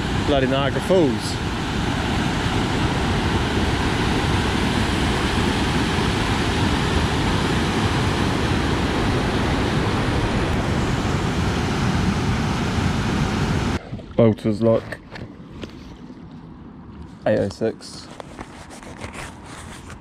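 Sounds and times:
water rushing over weir: 0.0 - 13.8.

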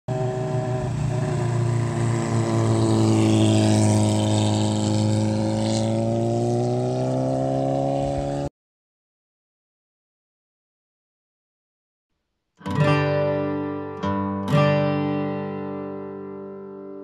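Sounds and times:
motorcycle engine running: 0.1 - 8.5.

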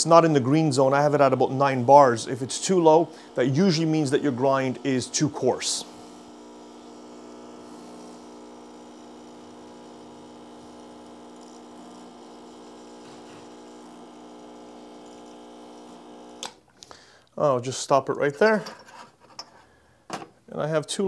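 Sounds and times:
espresso machine pump humming: 0.2 - 16.6.

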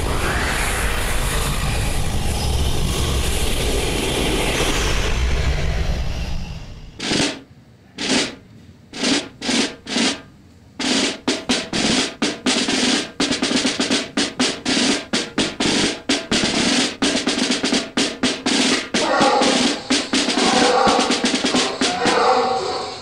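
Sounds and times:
loud drumming: 7.0 - 23.0.

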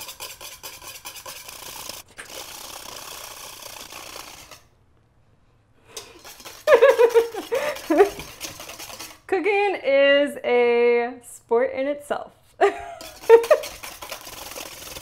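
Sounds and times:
whisk scraping a metal bowl: 0.0 - 4.7, 5.9 - 9.4, 12.8 - 15.0
woman speaking: 9.3 - 12.4.

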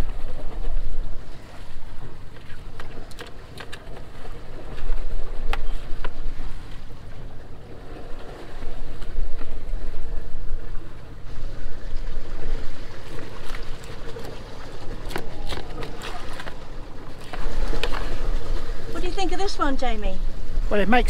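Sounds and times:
boat engine running: 0.0 - 21.0.

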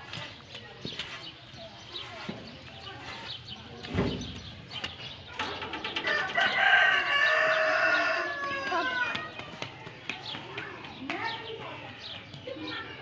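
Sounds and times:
rooster crowing: 6.1 - 9.0.

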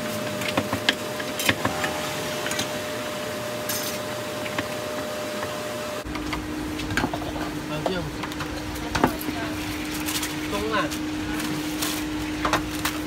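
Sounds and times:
steady hum: 1.4 - 6.8
low rumble: 1.5 - 3.8.

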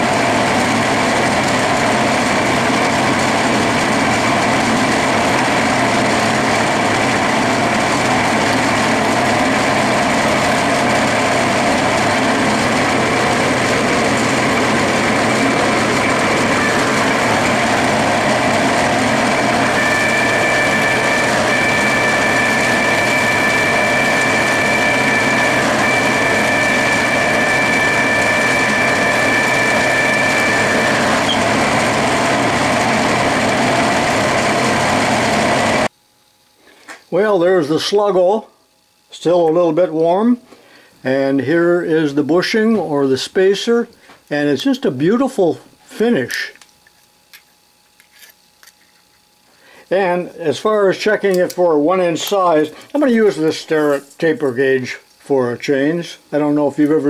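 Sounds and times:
high-pitched whine: 0.0 - 35.9
lathe machining noise: 0.0 - 35.9.

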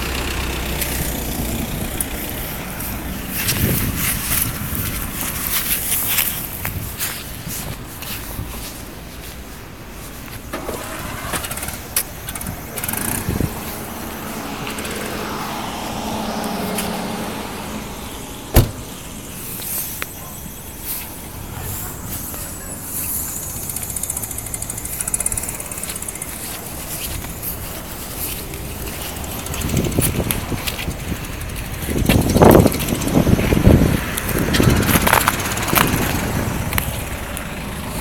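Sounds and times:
car engine passing: 0.0 - 4.3, 10.4 - 20.3
traffic noise: 0.0 - 38.0
sharp knock: 18.5 - 18.9.

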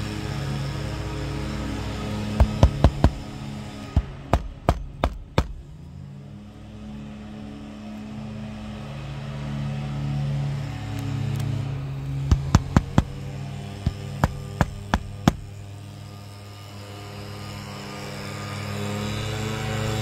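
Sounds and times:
low engine hum: 0.0 - 20.0
hammer striking roof: 2.3 - 5.7, 12.3 - 15.6.

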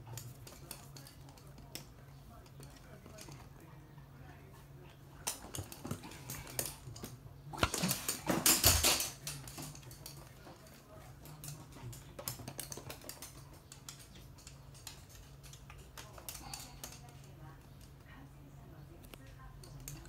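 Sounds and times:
dog claws clicking on hard floor: 5.2 - 18.0
clattering scuffle: 7.6 - 10.7.

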